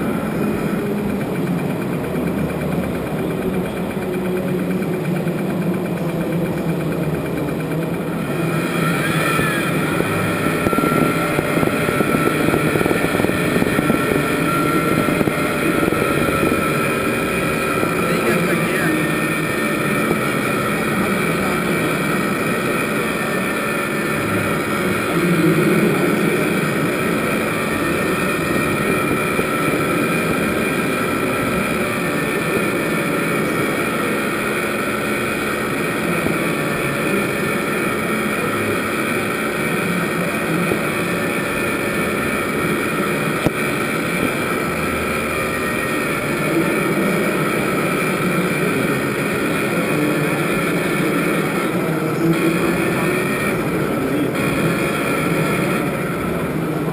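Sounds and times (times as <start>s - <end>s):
mechanical drone with whining: 0.0s - 56.9s.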